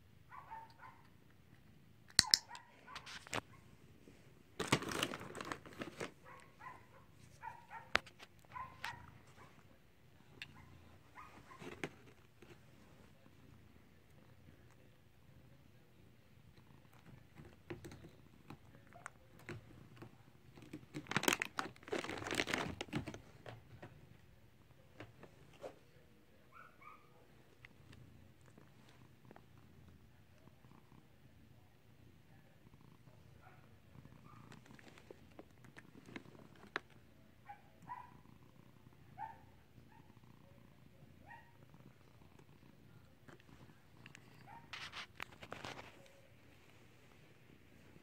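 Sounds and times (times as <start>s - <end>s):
sharp clicks: 2.1s - 2.6s
rustling and crinkling: 2.6s - 13.4s, 16.9s - 24.2s, 34.2s - 37.0s, 43.1s - 48.0s.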